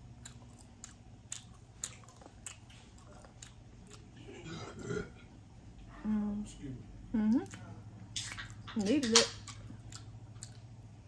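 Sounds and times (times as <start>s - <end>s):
person chewing meat: 0.0s - 5.3s, 9.5s - 11.0s.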